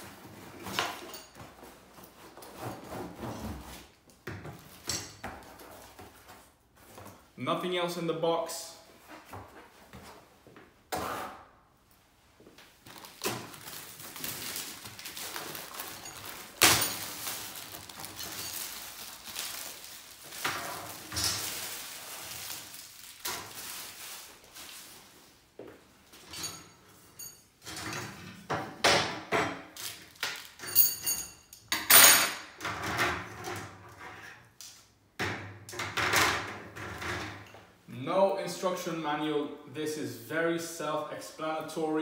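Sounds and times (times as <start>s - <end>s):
plastic wrapping crinkling: 12.6s - 25.3s, 29.8s - 30.6s
metal trays clinking and clattering: 15.5s - 19.2s.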